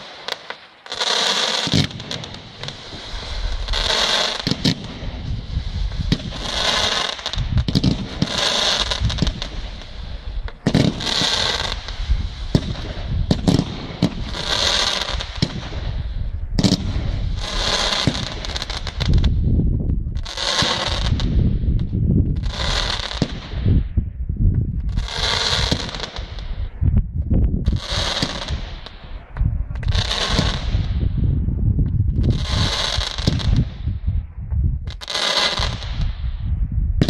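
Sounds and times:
firework shells bursting: 0.0s - 16.0s
crackling hiss of fireworks: 0.0s - 24.1s, 24.8s - 27.0s, 27.6s - 36.6s.

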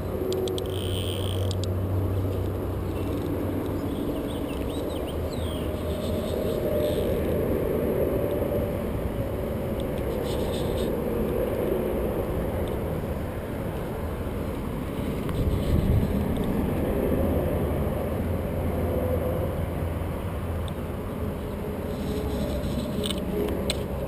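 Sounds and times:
wind buffeting microphone: 3.0s - 18.2s.

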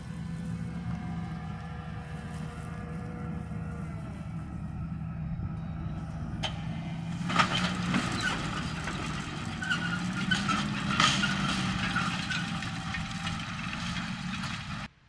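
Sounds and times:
tractor diesel engine under load: 0.0s - 15.0s
metallic clatter from implement: 6.4s - 14.9s.

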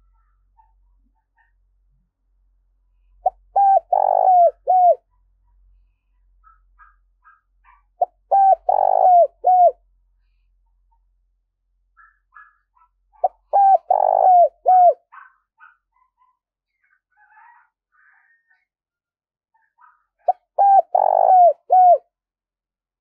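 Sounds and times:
dove cooing: 3.2s - 5.0s, 6.4s - 9.8s, 13.2s - 15.3s, 20.2s - 22.0s.

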